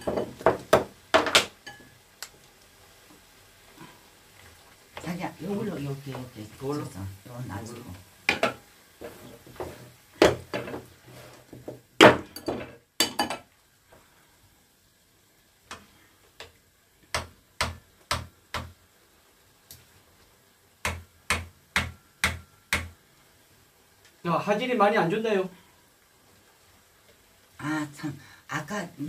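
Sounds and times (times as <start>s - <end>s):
wooden spoon knocking frying pan: 0.0s - 2.0s, 8.2s - 10.9s, 11.5s - 13.5s, 16.4s - 18.8s, 20.8s - 23.0s.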